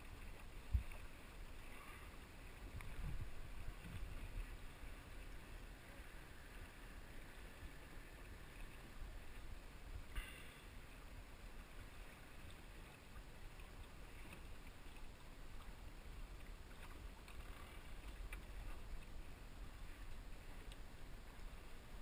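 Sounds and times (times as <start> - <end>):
wind rumble on microphone: 0.0 - 10.2
water lapping against hull: 0.0 - 22.0.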